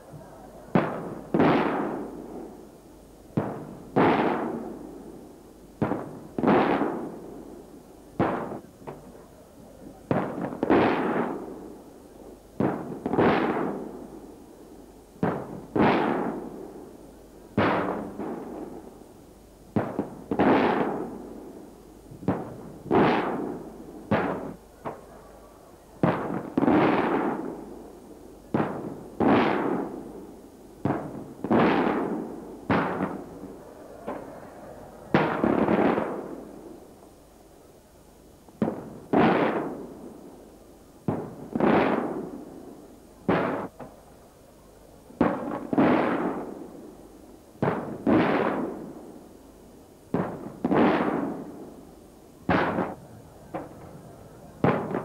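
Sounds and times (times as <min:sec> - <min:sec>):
firework shells bursting: 0:30.8 - 0:36.8, 0:52.5 - 0:53.8.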